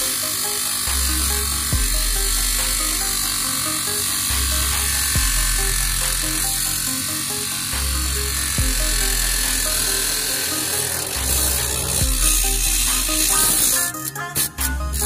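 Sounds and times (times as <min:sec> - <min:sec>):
cutting disc buzzing whine: 0:00.0 - 0:14.0
background music with bass line: 0:00.0 - 0:15.0.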